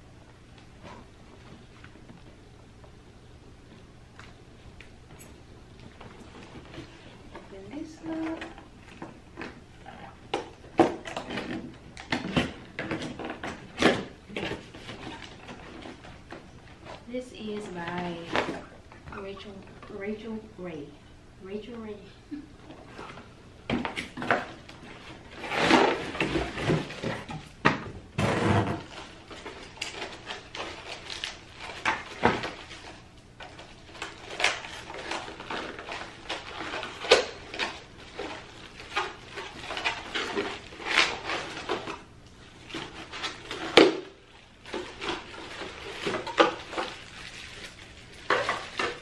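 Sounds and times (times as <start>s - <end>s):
plastic wrap rustling: 22.7s - 27.6s, 28.6s - 49.0s.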